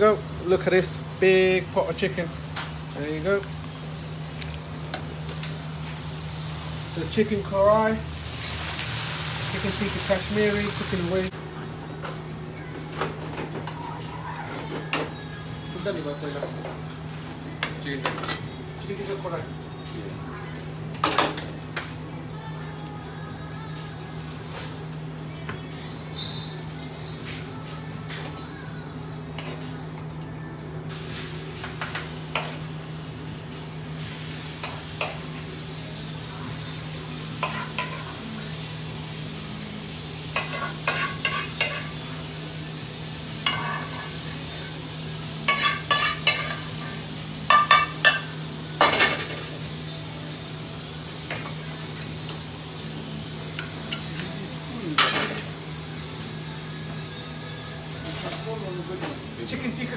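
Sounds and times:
curry sizzling in a pan: 0.0s - 11.3s, 30.9s - 59.9s.

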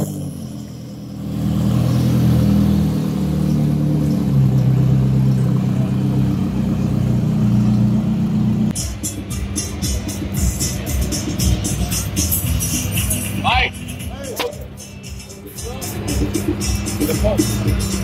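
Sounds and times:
car engine droning: 0.0s - 18.0s.

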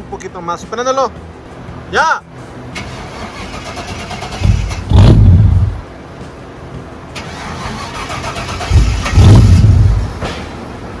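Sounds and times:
engine cranking: 2.8s - 5.4s, 7.1s - 9.9s.

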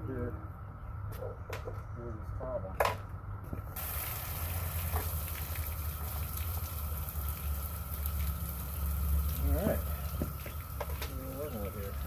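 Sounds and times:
water spraying and splashing: 3.8s - 12.0s.

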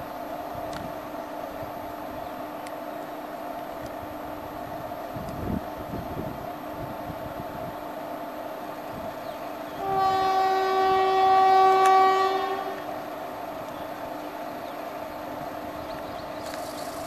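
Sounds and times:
train hum: 0.0s - 17.0s
locomotive horn blast: 9.8s - 13.0s.

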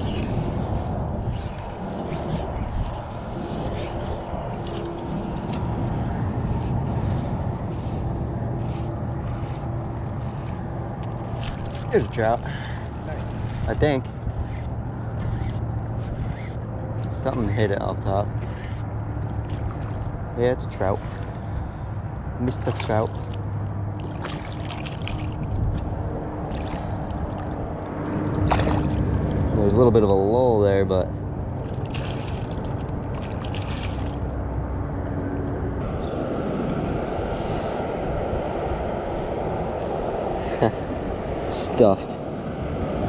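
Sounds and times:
wind rumble on microphone: 0.0s - 43.0s
water splashing: 10.9s - 16.5s, 17.1s - 21.6s, 22.4s - 27.6s, 28.2s - 29.5s, 31.6s - 35.2s.

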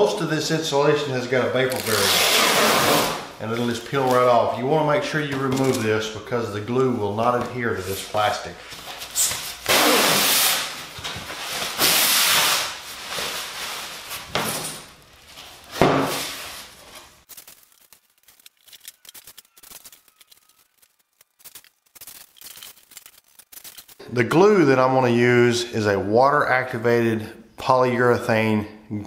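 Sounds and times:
plastic film crinkling: 1.6s - 4.6s, 10.4s - 24.1s
plastic film ripping off foam board: 1.7s - 3.3s, 9.2s - 14.3s, 15.4s - 24.0s.

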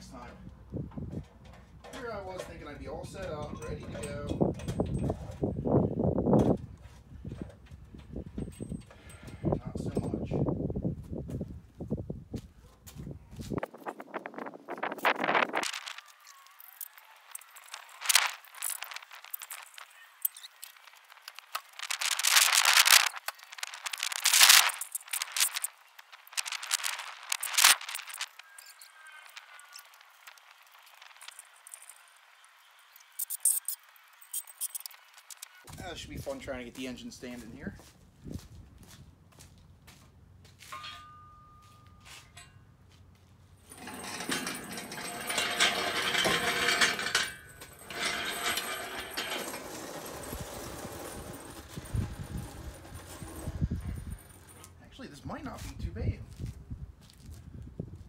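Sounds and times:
engine on chain clinking and rattling: 16.6s - 32.2s, 43.6s - 54.8s
metal clank: 40.7s - 42.7s, 43.6s - 54.7s.

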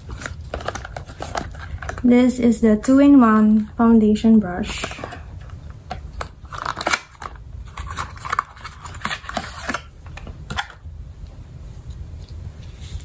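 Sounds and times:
cardboard and plastic clicks and scrapes: 0.0s - 2.1s, 4.7s - 10.8s.

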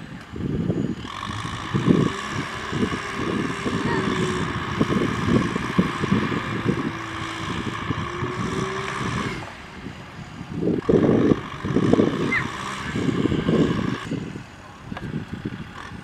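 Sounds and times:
tractor diesel engine rumbling: 0.0s - 16.0s.

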